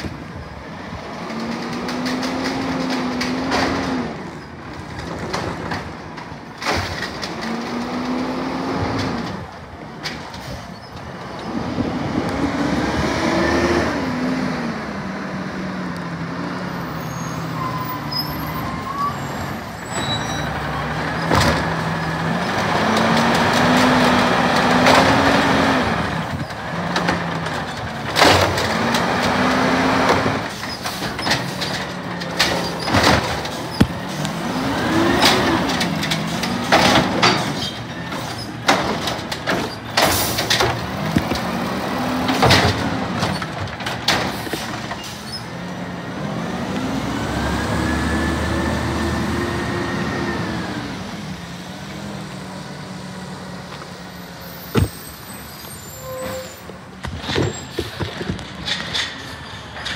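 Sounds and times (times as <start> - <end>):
truck engine revving: 6.9 - 9.8, 11.1 - 55.8
metal clanks and bangs: 26.2 - 45.4
air brakes hissing: 54.3 - 56.8.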